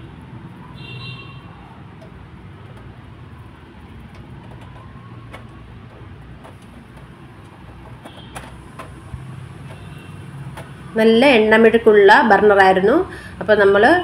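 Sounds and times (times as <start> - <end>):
toothbrush knocking on burner: 4.0 - 10.8.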